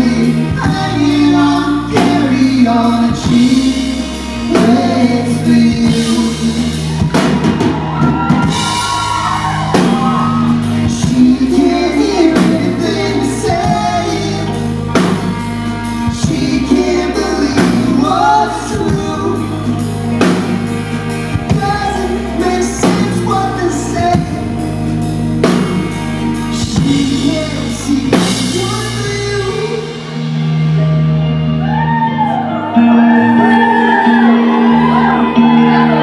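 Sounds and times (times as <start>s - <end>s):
person singing: 0.0s - 15.4s, 16.0s - 20.5s, 21.3s - 24.8s, 25.4s - 30.3s, 31.6s - 36.0s
live rock band playing: 0.0s - 36.0s
audience shouting and whooping: 6.8s - 11.0s, 31.4s - 36.0s.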